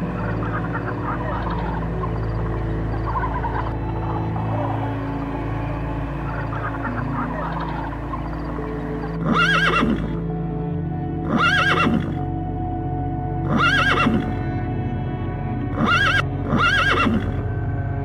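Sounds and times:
background music: 0.0s - 18.0s
horse neighing: 9.2s - 10.1s, 11.3s - 12.2s, 13.5s - 14.2s, 15.8s - 17.4s.

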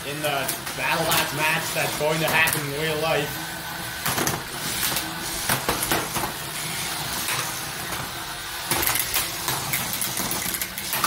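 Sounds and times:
small electric motors whirring: 0.1s - 11.0s.

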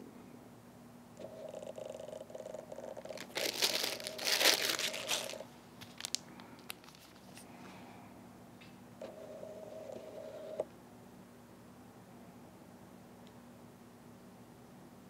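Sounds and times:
plastic packaging crinkling: 2.8s - 7.5s.

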